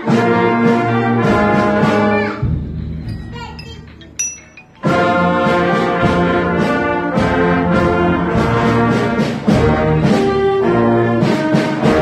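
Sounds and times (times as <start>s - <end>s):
wind band playing chords: 0.0s - 2.0s, 4.7s - 12.0s.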